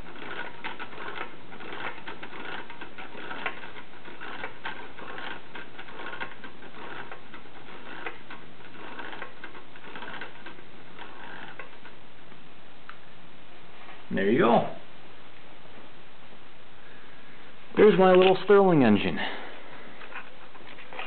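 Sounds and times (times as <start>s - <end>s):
small engine mechanical clatter: 0.0s - 12.0s.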